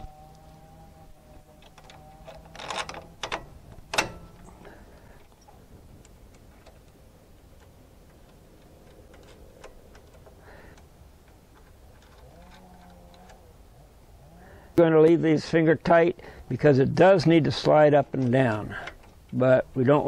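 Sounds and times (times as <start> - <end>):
metal bolts clinking on steel: 1.6 - 4.8.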